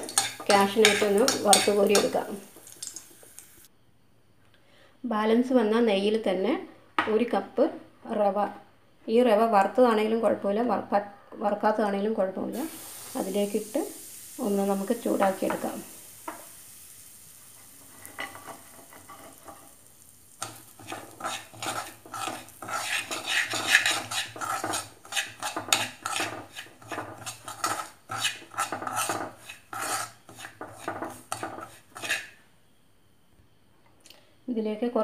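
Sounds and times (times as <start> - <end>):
metal spoon scraping pan: 0.0 - 3.4, 17.8 - 19.8, 20.4 - 32.4
semolina sizzling in hot fat: 0.0 - 3.8, 12.5 - 32.5.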